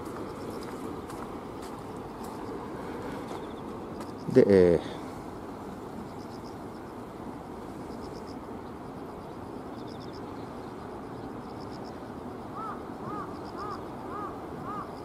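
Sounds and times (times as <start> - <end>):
distant road traffic: 0.0 - 15.0
bird calling: 12.6 - 15.0.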